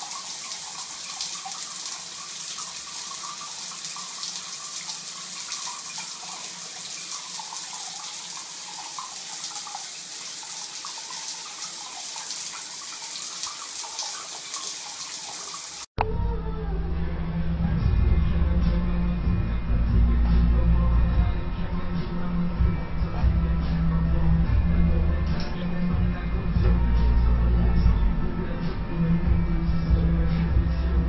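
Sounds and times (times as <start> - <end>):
tap water running into basin: 0.0 - 15.9.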